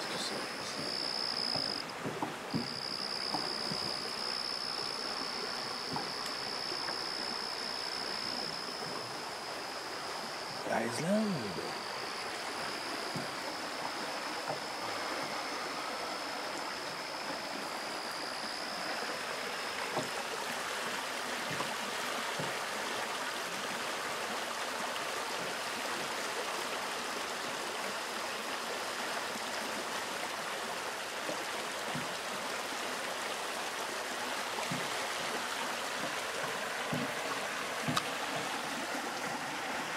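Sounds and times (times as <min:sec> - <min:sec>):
stream water running: 0:00.0 - 0:39.9
thin high tone: 0:06.2 - 0:13.8.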